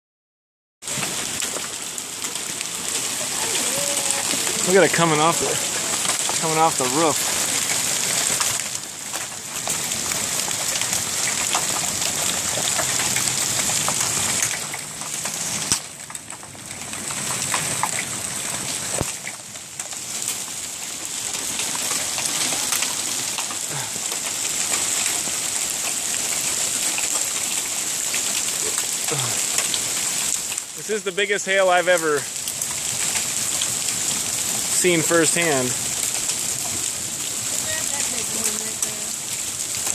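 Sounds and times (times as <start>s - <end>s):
hailstones hitting: 0.8s - 39.9s.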